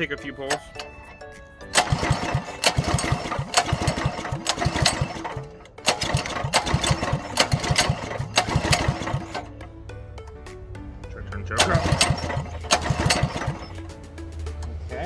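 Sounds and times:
recoil starter cranking engine: 0:00.4 - 0:09.6, 0:11.6 - 0:14.0.

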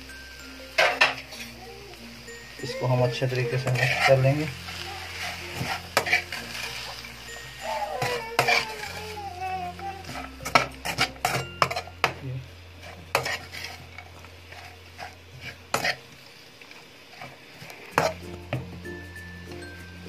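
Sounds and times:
spatula scraping metal wok: 0:03.1 - 0:12.0, 0:12.8 - 0:16.1, 0:17.1 - 0:18.3.

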